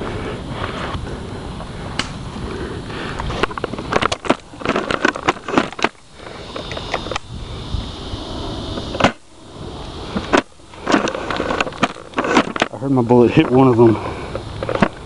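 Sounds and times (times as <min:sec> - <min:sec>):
sharp clicks and snaps: 0:02.0 - 0:02.2.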